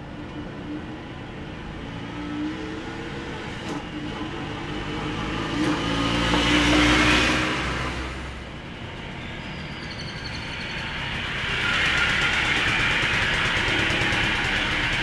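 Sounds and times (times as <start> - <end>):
three-wheeler engine passing by: 10.4 - 15.0.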